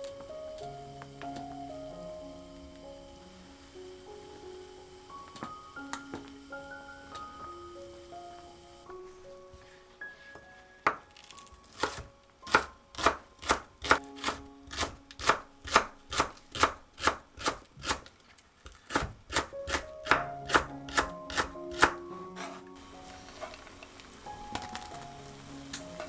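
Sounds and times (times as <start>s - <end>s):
knife chopping on wooden board: 18.9s - 22.6s.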